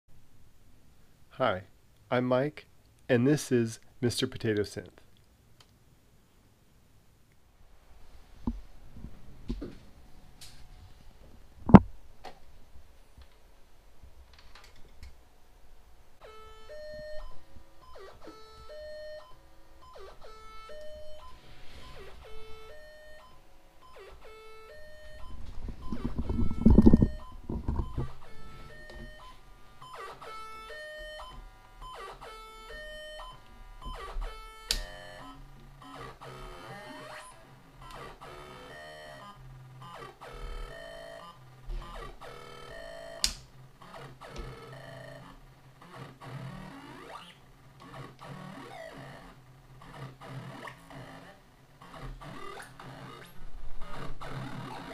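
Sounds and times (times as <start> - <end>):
sequenced electronic synth notes: 21.9 - 54.9
buzzy electronic synth pattern: 23.9 - 29.3.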